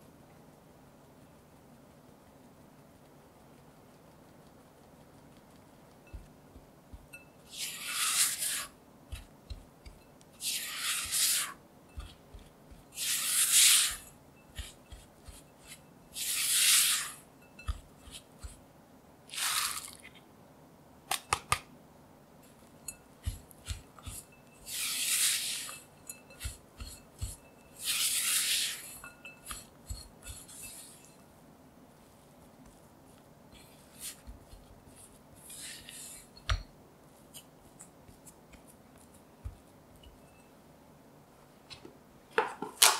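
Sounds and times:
spatula scraping dough in bowl: 0:06.1 - 0:18.7, 0:22.4 - 0:31.2, 0:33.5 - 0:36.6.

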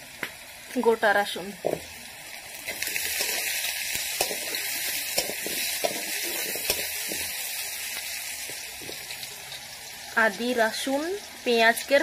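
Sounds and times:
garlic and onion sizzling in oil: 0:00.0 - 0:12.0
spatula scraping pan: 0:02.7 - 0:07.4.

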